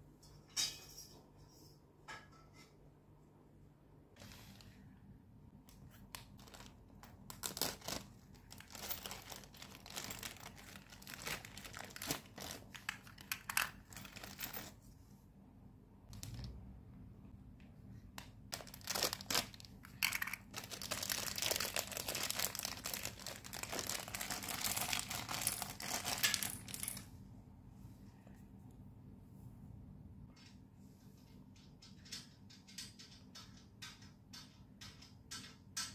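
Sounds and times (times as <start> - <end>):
plastic packaging crinkling and tearing: 6.4 - 13.2, 18.5 - 26.2.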